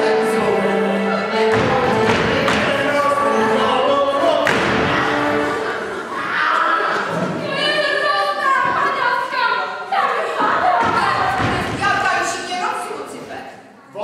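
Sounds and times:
thumps: 1.4 - 2.9, 4.4 - 5.3.

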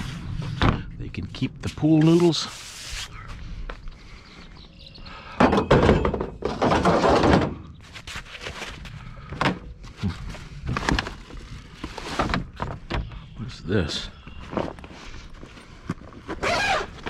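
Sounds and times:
rustling and scraping: 0.0 - 3.8, 5.7 - 13.2, 14.3 - 17.0
thuds and knocks: 5.4 - 7.6.

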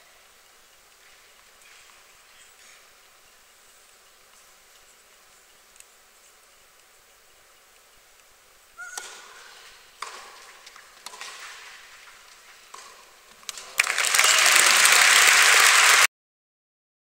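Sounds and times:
tennis ball struck by rackets: 8.8 - 11.7, 12.7 - 13.7
crowd applause: 13.5 - 16.1.

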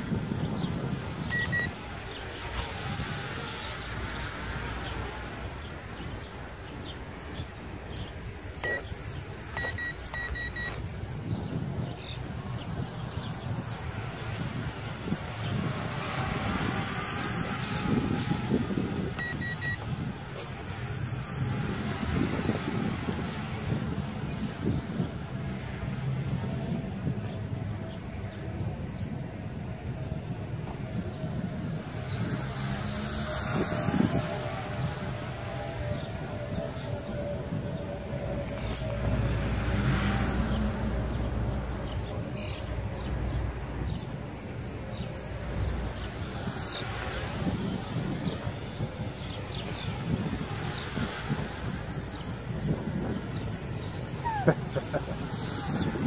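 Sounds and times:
faint drone motor whine: 0.0 - 56.0
wind rumble on microphone: 0.0 - 56.0
short electronic beeps: 1.3 - 1.8, 8.6 - 8.9, 9.5 - 10.8, 19.2 - 19.8.

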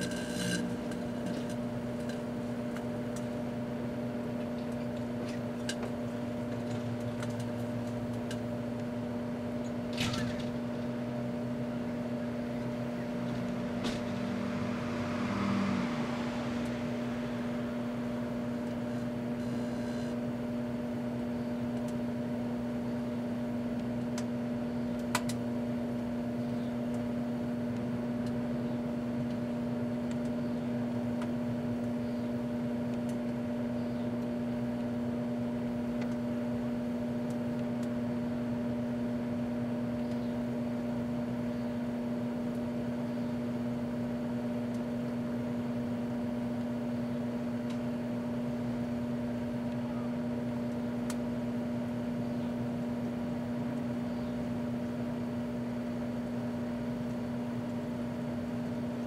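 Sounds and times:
microwave oven humming: 0.0 - 59.0.

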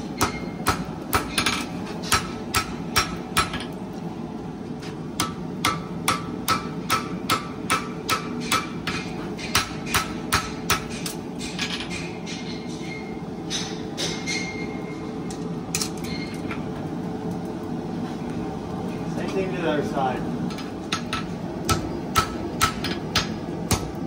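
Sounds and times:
hammer striking horseshoe on anvil: 0.2 - 3.8, 5.2 - 14.8, 20.9 - 24.0.

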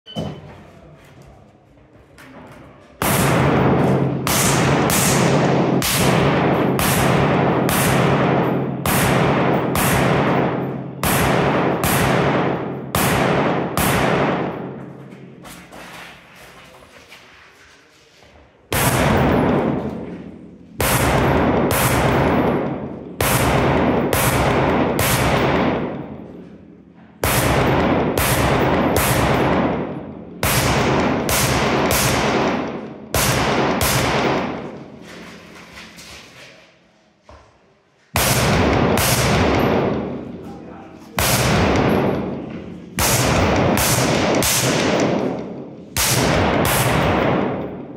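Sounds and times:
rifle shots echoing: 3.0 - 15.0, 18.7 - 35.0, 38.2 - 40.4, 41.1 - 47.9.

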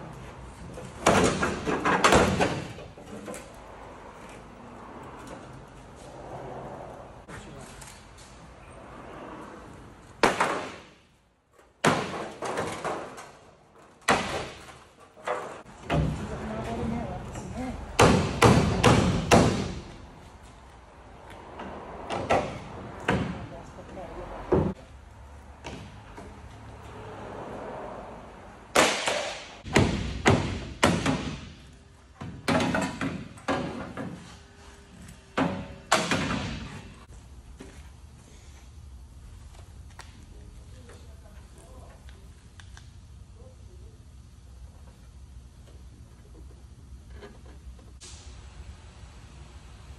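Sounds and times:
hammer striking metal panel: 18.0 - 19.8.

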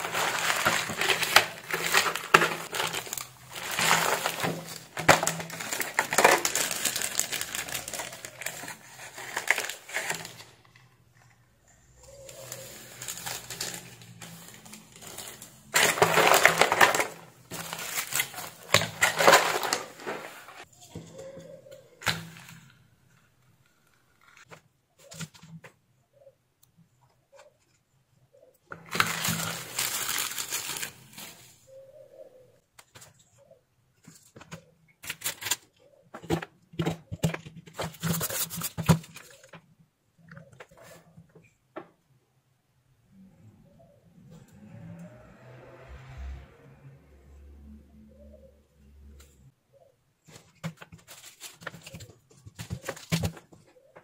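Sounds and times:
plastic bag crinkling: 0.0 - 10.6, 12.4 - 20.7, 28.8 - 31.6.

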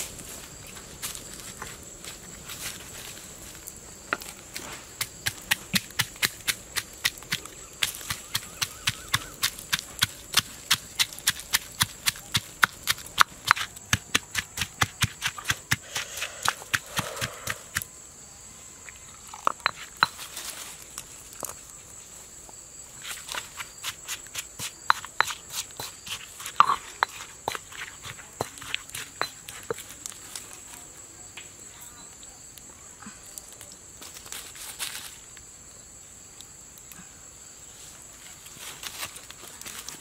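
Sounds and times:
pestle pounding in mortar: 5.2 - 17.8, 23.8 - 29.8.

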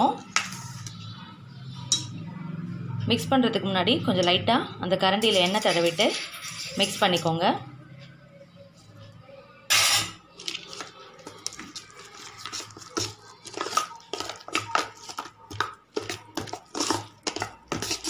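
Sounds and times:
ladle scraping steel bowl: 5.2 - 7.3, 9.7 - 18.0.

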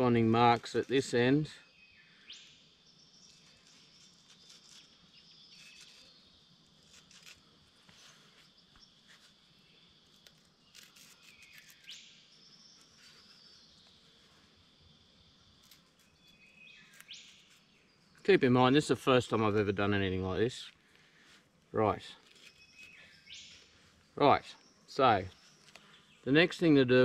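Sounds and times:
insects: 0.0 - 27.0
small birds chirping: 0.0 - 27.0.

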